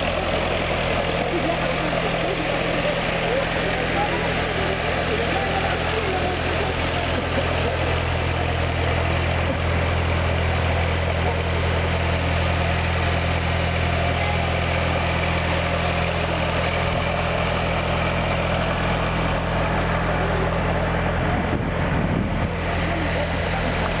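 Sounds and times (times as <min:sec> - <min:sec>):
diesel train engine idling: 0:00.0 - 0:24.0.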